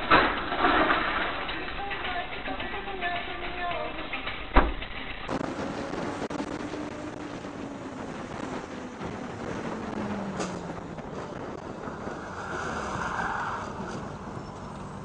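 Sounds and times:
engine hum: 0:00.0 - 0:15.0
road and wind noise in car: 0:05.3 - 0:15.0.

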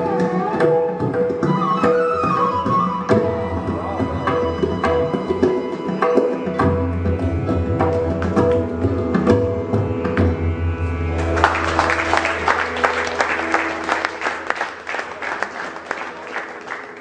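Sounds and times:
flute: 0:00.0 - 0:06.9
tabla strokes: 0:00.0 - 0:14.8
violin: 0:00.0 - 0:17.0
audience applause: 0:11.2 - 0:17.0.

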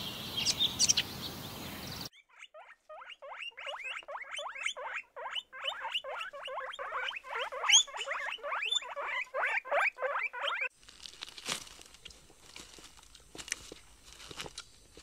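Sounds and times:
guinea pigs squeaking: 0:02.1 - 0:10.7.

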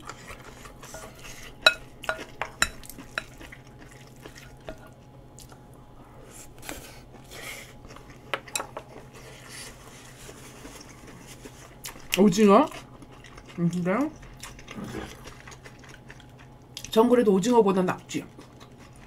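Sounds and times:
spoon clinking against a bowl: 0:01.0 - 0:03.4.

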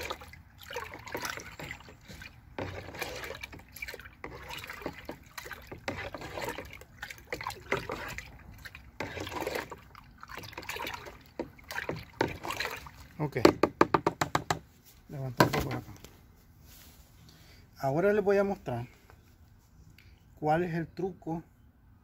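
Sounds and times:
liquid sloshing in plastic bucket: 0:00.0 - 0:16.1.

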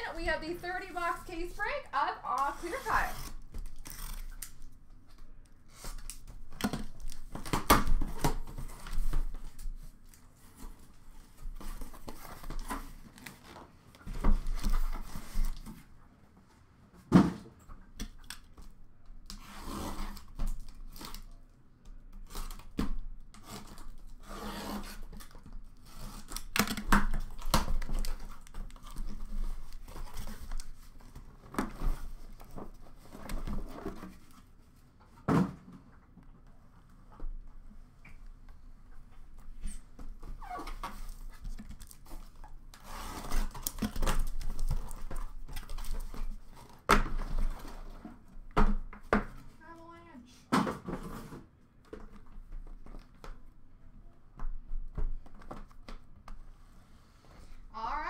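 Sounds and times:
packing tape tearing: 0:02.3 - 0:04.8, 0:22.2 - 0:32.4, 0:40.4 - 0:47.8.

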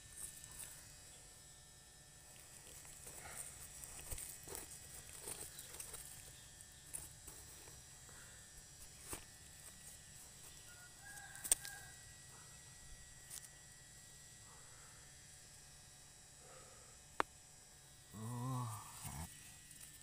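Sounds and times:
knife scraping dry soil: 0:02.2 - 0:12.0.

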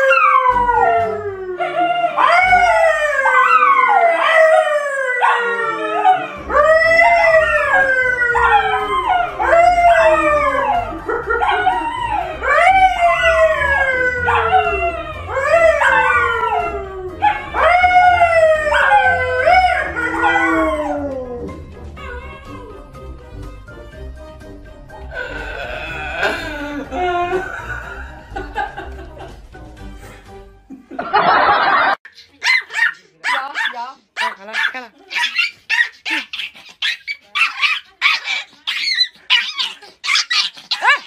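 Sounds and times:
dogs howling: 0:00.0 - 0:23.0
man howling: 0:25.2 - 0:27.5.

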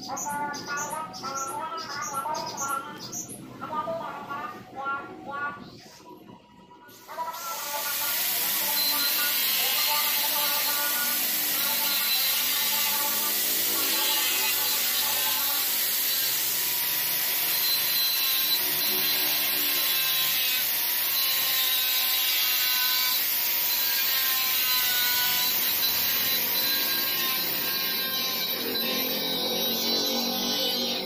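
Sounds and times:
angle grinder cutting fibreglass: 0:06.9 - 0:31.0.

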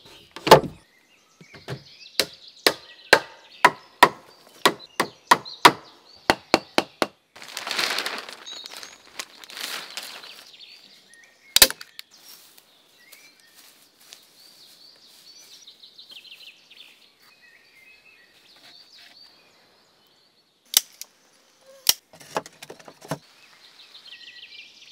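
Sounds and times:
songbirds chirping: 0:00.0 - 0:24.9
loud wood crack: 0:00.4 - 0:00.8, 0:04.0 - 0:10.4, 0:11.6 - 0:12.0
sharp knocks on logs: 0:00.4 - 0:00.8, 0:01.4 - 0:07.2
rustling: 0:07.4 - 0:10.6.

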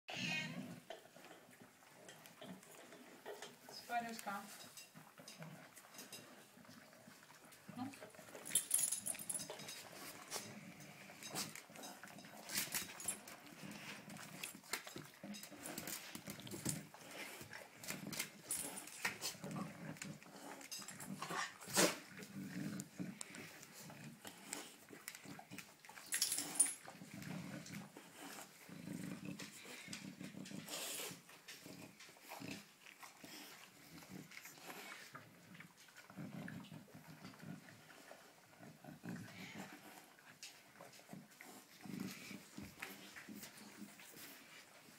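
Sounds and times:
dog growling low: 0:15.3 - 0:24.8, 0:26.9 - 0:32.7, 0:33.3 - 0:40.1.

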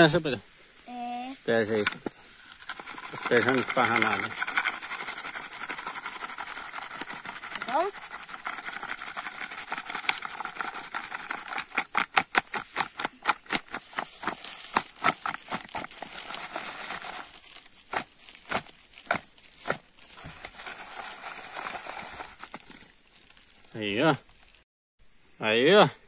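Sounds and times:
flour pouring: 0:02.6 - 0:11.5
plastic bag crinkling: 0:14.2 - 0:24.6.

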